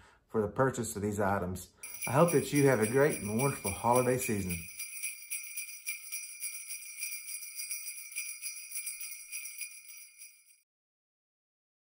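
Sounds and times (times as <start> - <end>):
jingle bells shaken: 1.8 - 10.6.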